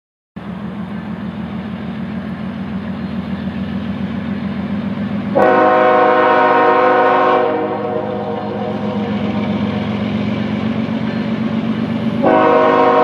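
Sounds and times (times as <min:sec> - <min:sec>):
locomotive rumble: 0:00.4 - 0:13.0
train horn chord: 0:05.3 - 0:09.6, 0:12.2 - 0:13.0.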